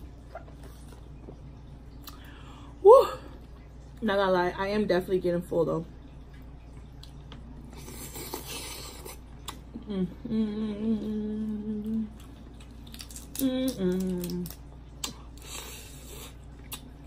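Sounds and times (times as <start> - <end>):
woman humming: 9.7 - 12.2, 13.4 - 14.6.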